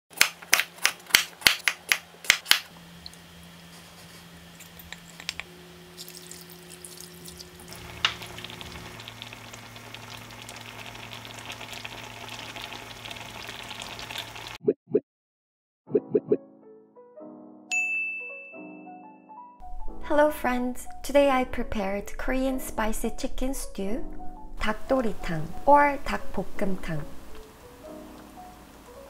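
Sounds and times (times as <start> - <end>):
knife chopping on wooden board: 0.2 - 2.7
stew simmering and sizzling: 2.7 - 14.6.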